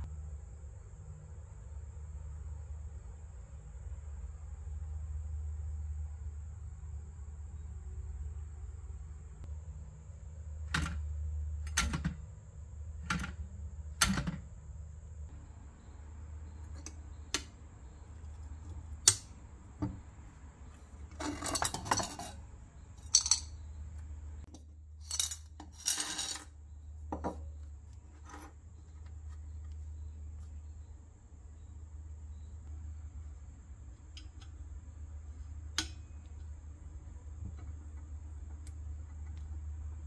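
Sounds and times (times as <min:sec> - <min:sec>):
coins clinking on wood: 0:21.2 - 0:22.4, 0:23.0 - 0:23.6, 0:25.0 - 0:26.5.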